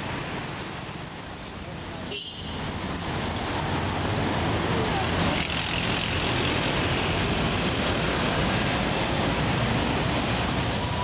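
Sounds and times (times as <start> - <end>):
passing vehicles rushing: 0.0 - 11.0.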